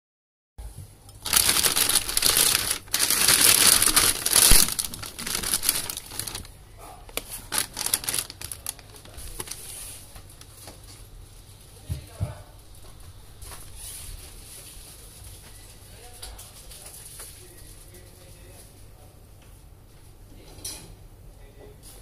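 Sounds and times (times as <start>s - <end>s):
plastic bag crinkling: 1.2s - 10.6s.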